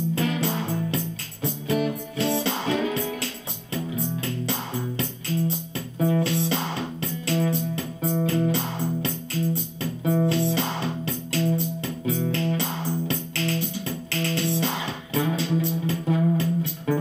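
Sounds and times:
overdriven acoustic guitar strumming: 0.0 - 17.0.

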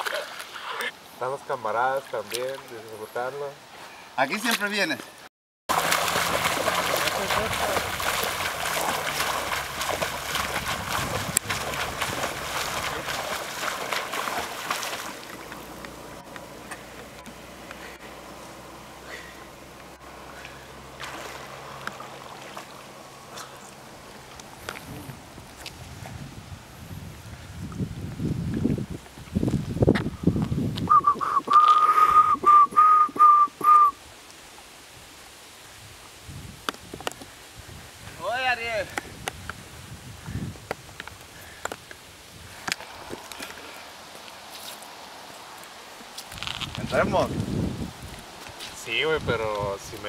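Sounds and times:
swimmer splashing: 5.7 - 24.7
person whistling one pitch: 30.9 - 34.0.

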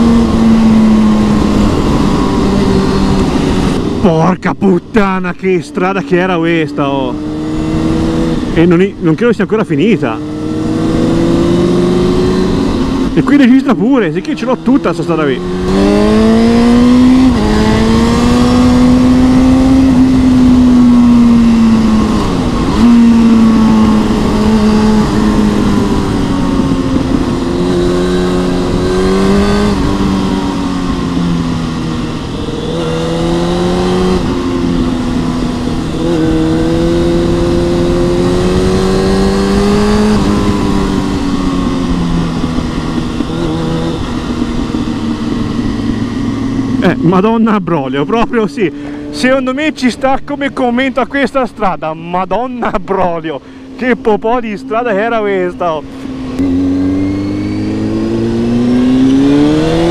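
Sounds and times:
wind noise: 0.0 - 9.1, 15.4 - 51.1
motorcycle engine accelerating: 0.0 - 59.9.

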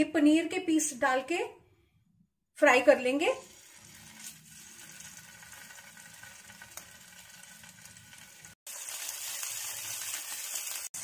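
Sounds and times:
cheese sizzling in oil: 3.4 - 11.0.

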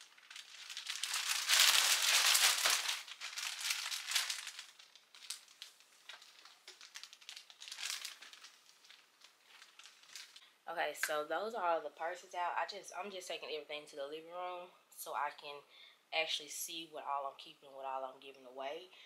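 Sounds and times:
plastic bags crinkling: 0.0 - 10.4.

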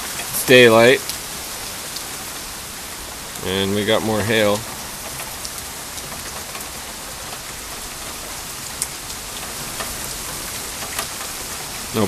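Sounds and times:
rain and hail falling: 0.0 - 12.0
sharp ticks of hail impacts: 4.1 - 12.0.

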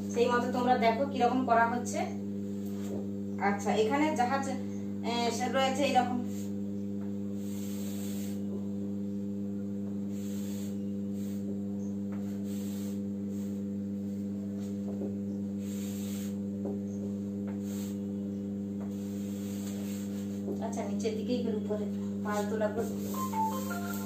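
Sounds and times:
electrical mains hum: 0.0 - 24.0
chalk scratching on blackboard: 22.4 - 24.0.

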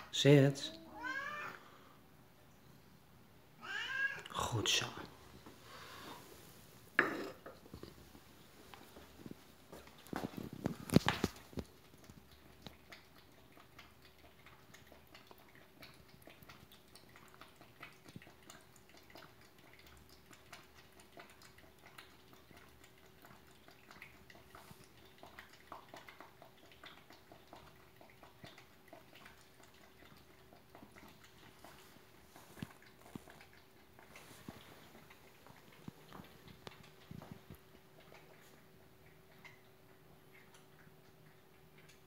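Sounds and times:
cat chewing clicks and smacks: 7.6 - 42.0.

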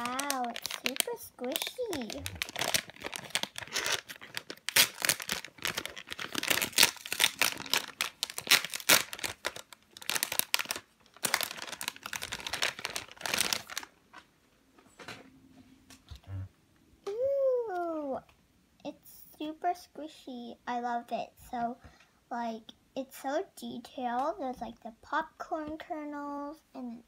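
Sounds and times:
plastic packaging crinkling: 0.0 - 14.3.

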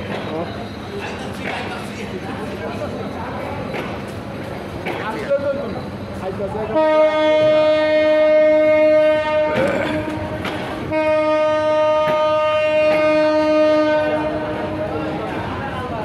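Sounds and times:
train coaches rumbling: 0.0 - 16.0
train horn blasts: 6.7 - 14.8.

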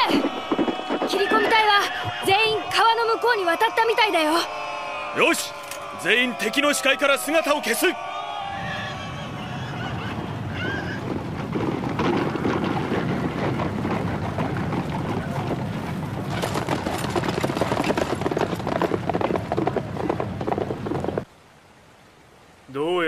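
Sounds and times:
galloping horses' hooves: 0.0 - 3.2, 10.6 - 21.3.

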